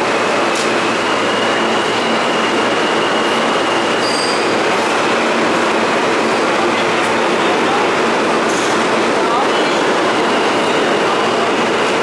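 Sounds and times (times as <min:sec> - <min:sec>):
train wheels rushing on rail: 0:00.0 - 0:12.0
high wheel squeal: 0:00.8 - 0:04.8.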